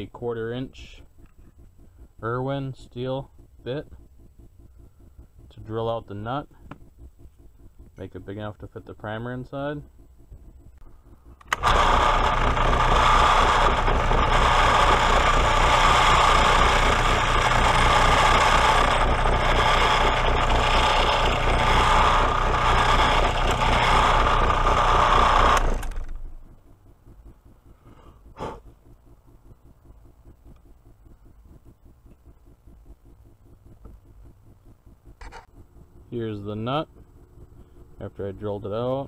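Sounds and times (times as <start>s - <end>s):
drill press motor running: 10.2s - 28.9s
drill bit boring into steel: 11.4s - 26.2s.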